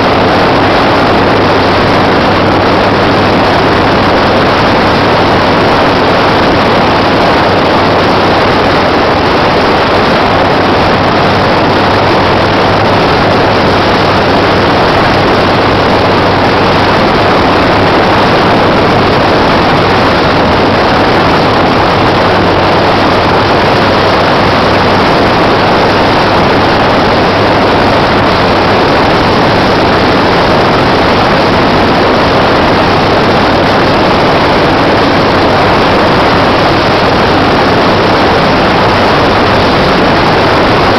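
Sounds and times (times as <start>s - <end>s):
motorcycle engine running: 0.0s - 40.9s
wind rush over microphone: 0.0s - 40.9s.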